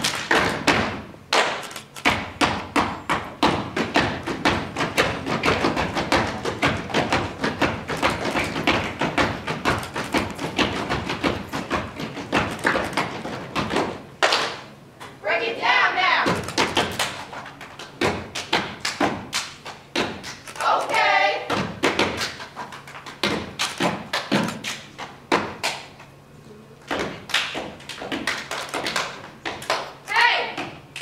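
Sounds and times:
hands clapping and slapping: 0:00.0 - 0:02.2, 0:14.2 - 0:14.6, 0:16.4 - 0:20.7, 0:21.8 - 0:26.1, 0:26.9 - 0:30.0
feet stomping on stage floor: 0:00.0 - 0:14.0
people shouting: 0:30.1 - 0:30.5.

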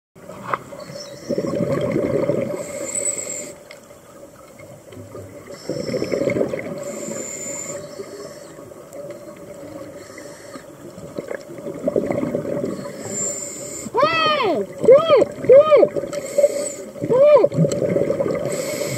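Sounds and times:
exhaled bubbles underwater: 0:00.2 - 0:03.5, 0:04.1 - 0:18.9
regulator inhale hiss: 0:02.5 - 0:03.7, 0:05.4 - 0:08.7, 0:09.7 - 0:10.8, 0:12.8 - 0:14.0, 0:16.1 - 0:17.0, 0:18.4 - 0:18.9.

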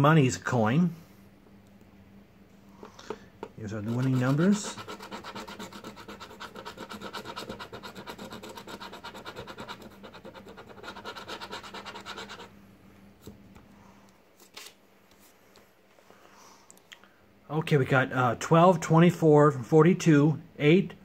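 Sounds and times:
coin scratching lottery ticket: 0:03.6 - 0:12.5.

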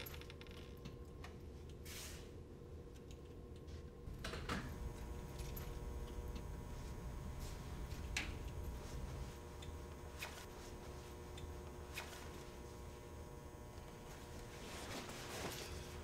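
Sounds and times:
low hum: 0:02.4 - 0:16.0
jacket fabric rustling: 0:06.6 - 0:13.2, 0:13.9 - 0:16.0.

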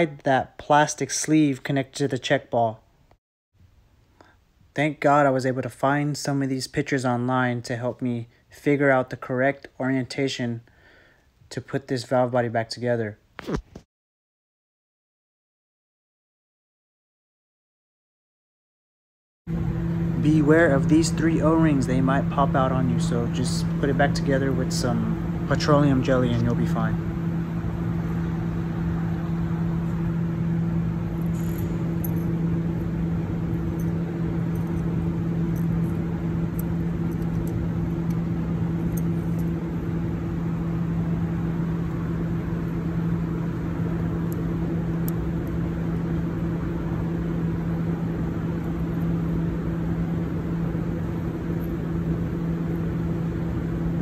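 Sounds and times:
low mechanical hum: 0:00.0 - 0:13.8, 0:19.5 - 0:54.0.

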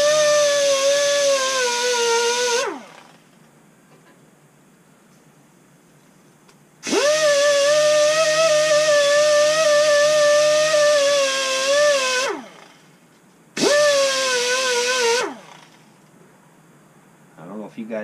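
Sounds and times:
die grinder whining: 0:00.0 - 0:03.2, 0:06.8 - 0:12.9, 0:13.6 - 0:15.8.

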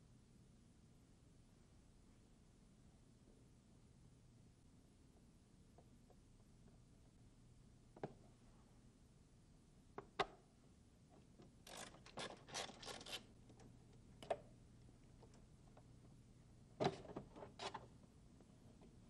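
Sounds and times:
plastic parts scraping: 0:11.6 - 0:13.3.

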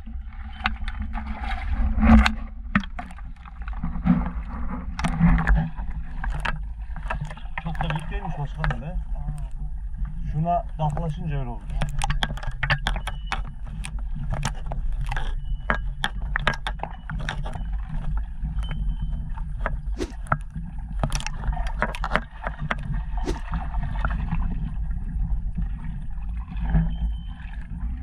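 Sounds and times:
lake water sloshing and splashing: 0:00.0 - 0:28.0
irregular clicks and knocks: 0:02.0 - 0:09.6, 0:10.7 - 0:23.5.

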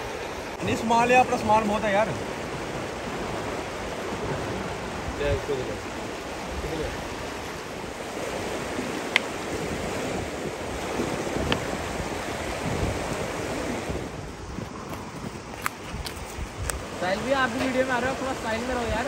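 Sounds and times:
river rushing: 0:00.0 - 0:19.0
sharp click: 0:09.1 - 0:09.3.

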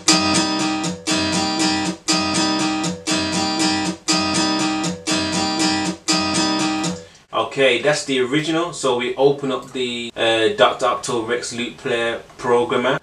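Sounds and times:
strummed guitar loop: 0:00.0 - 0:07.2.

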